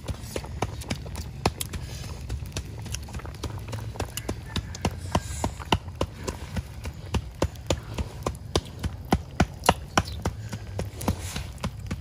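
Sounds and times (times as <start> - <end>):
fire crackling and popping: 0.0 - 12.0
low steady rumble: 0.0 - 12.0.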